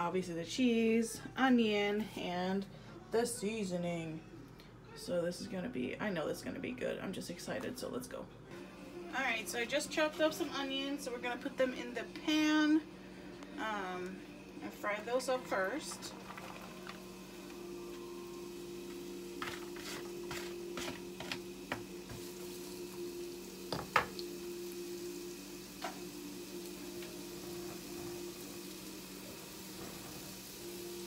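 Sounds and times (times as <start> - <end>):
onions sizzling in oil: 14.8 - 31.0.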